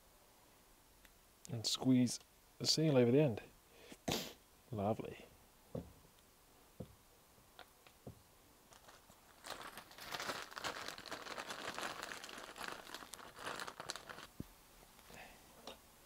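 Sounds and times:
wrapping crinkling and rustling: 8.7 - 14.5.

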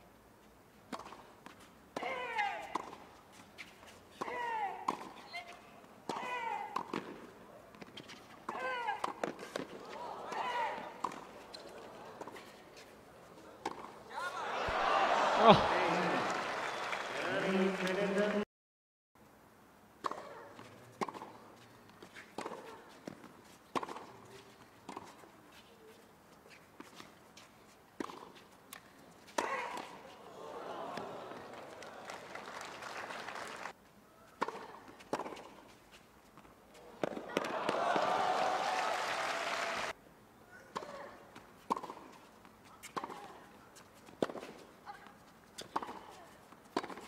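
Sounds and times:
racket hitting tennis ball: 0.9 - 3.1, 4.2 - 12.6, 13.6 - 14.0, 20.0 - 21.4, 22.0 - 25.3, 28.0 - 30.3, 34.4 - 35.6, 36.4 - 38.2, 40.7 - 43.4, 44.1 - 44.6, 45.6 - 47.0.

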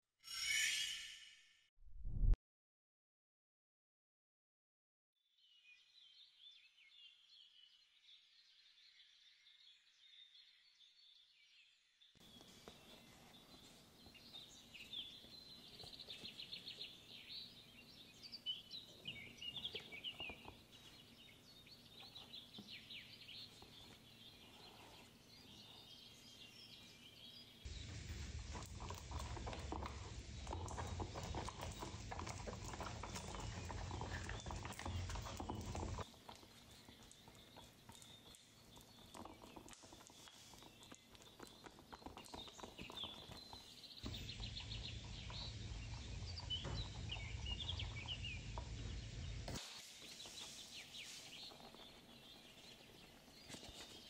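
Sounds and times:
steady noise with low hum: 27.6 - 36.1, 44.0 - 51.2.

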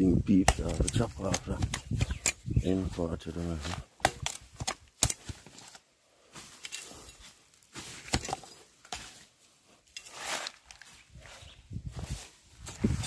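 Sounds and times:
blade chopping palm heart: 0.4 - 2.4, 4.0 - 5.5.

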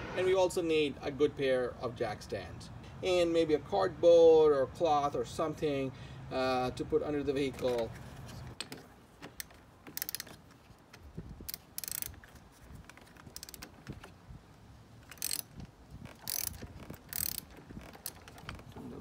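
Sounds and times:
hand ratchet clicking: 9.4 - 10.4, 11.5 - 12.2, 13.2 - 13.7, 15.0 - 15.5, 16.1 - 18.4.

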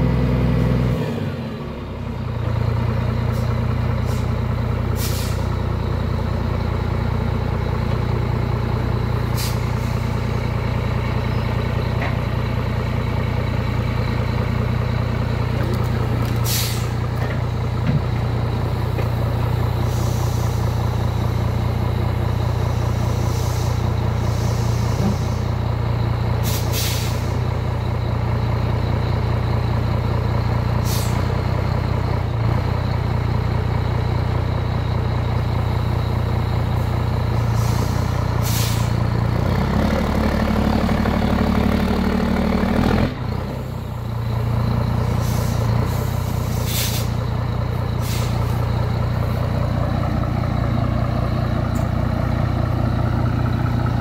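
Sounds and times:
truck diesel engine running: 0.0 - 54.0
compressed air hisses: 16.4 - 17.0, 26.4 - 27.3, 37.5 - 39.0, 46.3 - 47.2, 48.0 - 48.6.

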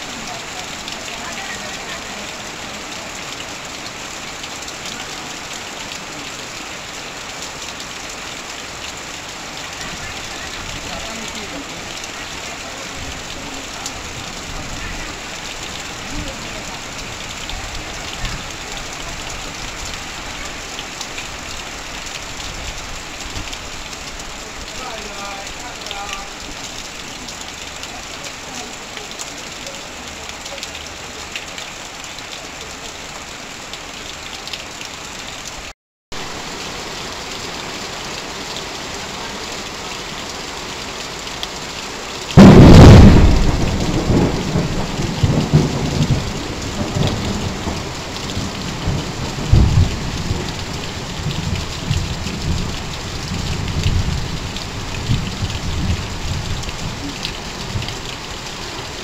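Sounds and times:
heavy rain on metal roof: 0.0 - 59.0
water streaming off roof: 0.0 - 59.0
loud thunderclap: 42.4 - 50.5
rolling thunder: 42.4 - 54.4.

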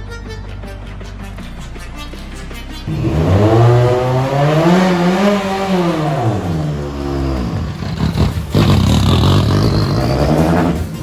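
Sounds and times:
car engine revving: 2.8 - 11.0.

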